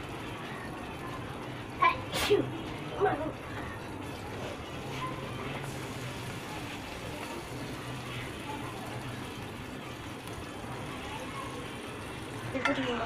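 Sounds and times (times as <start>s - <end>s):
fish sizzling in oil: 0.0s - 13.0s.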